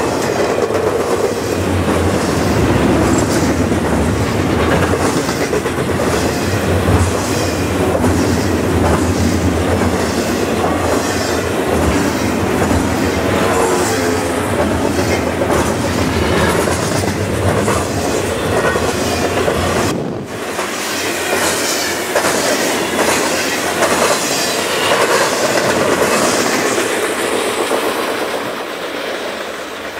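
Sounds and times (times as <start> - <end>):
freight train rolling past: 0.0 - 29.9
wheels clicking over rail joints: 21.3 - 29.9.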